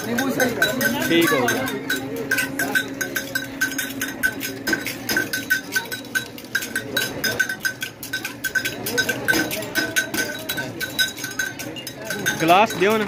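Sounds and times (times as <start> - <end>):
faint crowd voices: 0.0 - 13.0
small bells jingling: 0.0 - 13.0.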